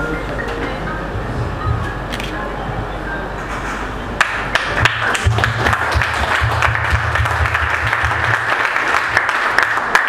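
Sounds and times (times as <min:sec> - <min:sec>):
bass line of background music: 0:00.0 - 0:03.4
crowd applauding: 0:04.2 - 0:10.0.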